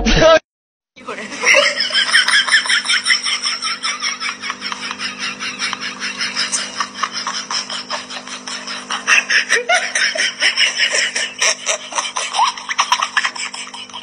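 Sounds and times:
people laughing: 1.0s - 14.0s.

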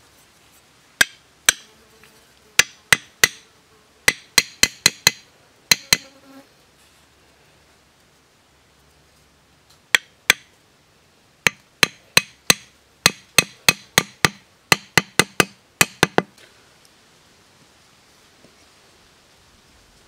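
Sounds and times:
machete striking wooden stake: 1.0s - 1.7s, 2.6s - 3.4s, 4.1s - 6.1s, 9.9s - 10.5s, 11.5s - 16.3s.

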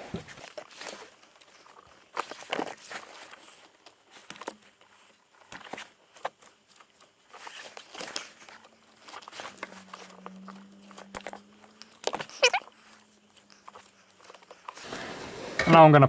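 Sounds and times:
hands rustling wires: 0.0s - 15.9s
wire strippers clicking and snipping: 5.5s - 14.7s
wavering squeak: 9.2s - 14.1s.

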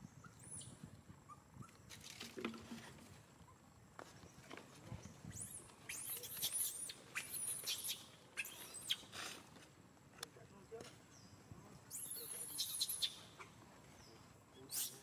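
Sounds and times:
baby monkey squeaking: 5.3s - 9.1s, 11.9s - 13.6s, 14.7s - 15.0s.

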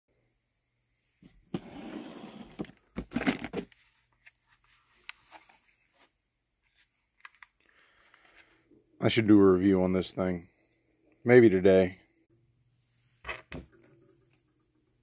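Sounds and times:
drawer sliding open: 1.5s - 3.7s
clatter and rustle of items: 2.4s - 6.1s.

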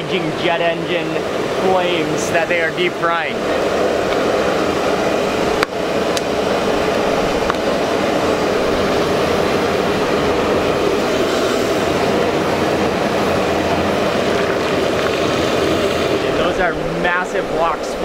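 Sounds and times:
gas burner roaring: 0.0s - 18.0s.

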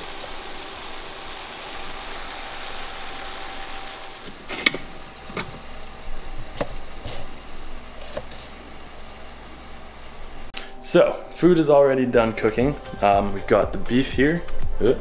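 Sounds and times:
meat sizzling in a frying pan: 0.0s - 4.2s.

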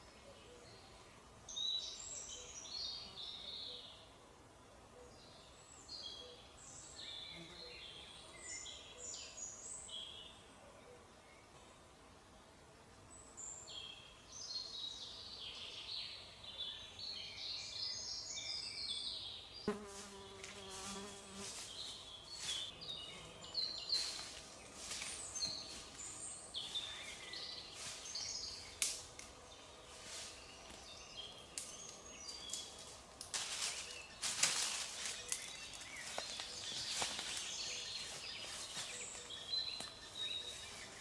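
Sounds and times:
songbirds chirping: 0.0s - 41.0s
flying insect buzzing: 19.6s - 30.8s.

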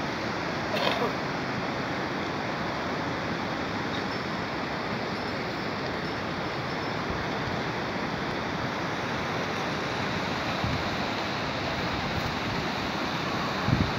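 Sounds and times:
steady outdoor rushing noise: 0.0s - 13.9s
wind bump on microphone: 13.6s - 13.9s.

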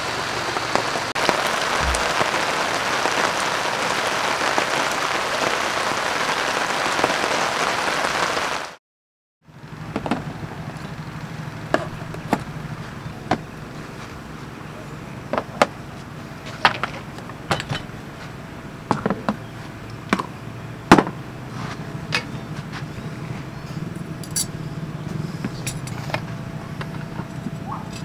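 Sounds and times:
low background hum: 9.5s - 28.0s.

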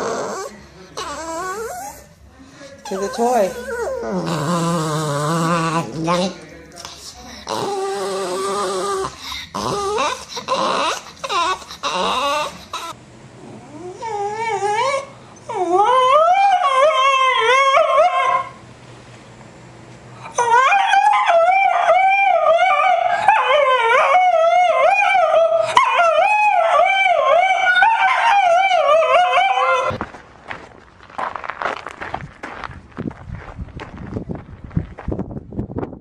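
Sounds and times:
dog choppy vocalizing: 2.8s - 16.5s
dog howling: 2.9s - 6.0s, 7.5s - 13.0s, 13.6s - 18.6s, 20.3s - 30.0s.

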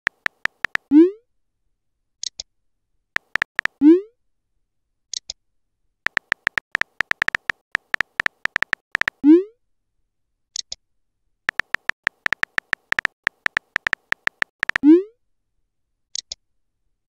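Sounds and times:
keyboard clicks: 0.0s - 0.9s, 3.2s - 3.8s, 6.1s - 9.2s, 11.5s - 14.8s
short high blips: 3.2s - 3.8s, 6.1s - 9.2s, 11.5s - 14.9s.

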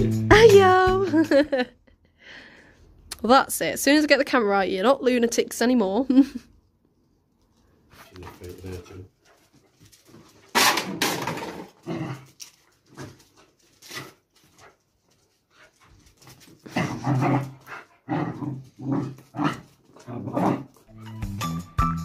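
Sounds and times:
puppies growling and barking: 10.5s - 13.2s, 16.6s - 20.9s.

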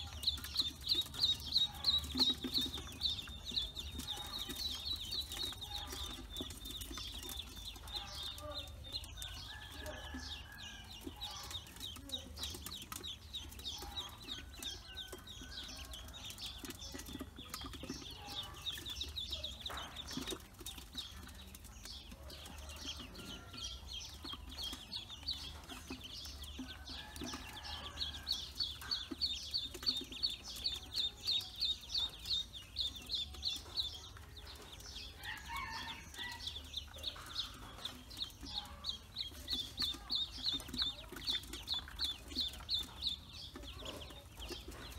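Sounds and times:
ducklings peeping: 0.0s - 44.9s.

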